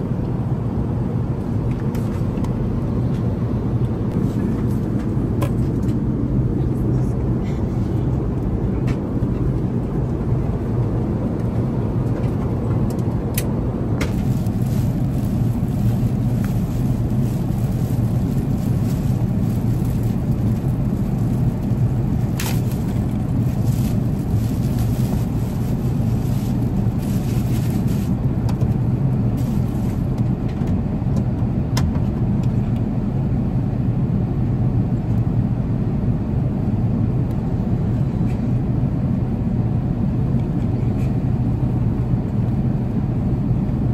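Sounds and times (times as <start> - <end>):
airplane cabin rumble: 0.0 - 43.9
plastic wrapping crinkling: 14.1 - 28.2, 29.4 - 30.1.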